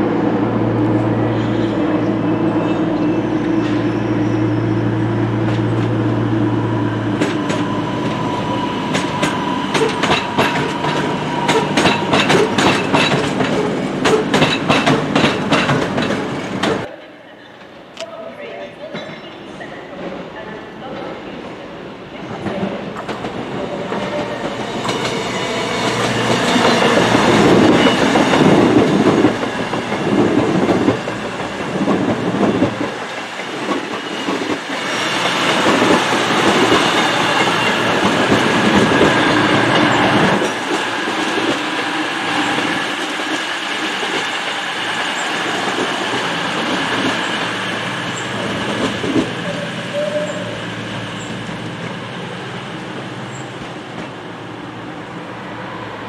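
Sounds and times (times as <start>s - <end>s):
train passing: 0.0s - 56.0s.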